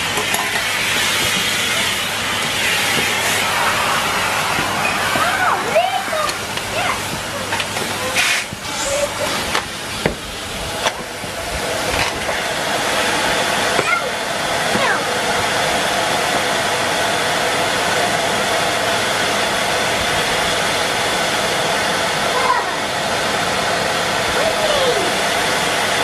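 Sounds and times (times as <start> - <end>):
vacuum cleaner motor running: 0.0 - 26.0
nozzle knocking on paving: 9.6 - 10.3.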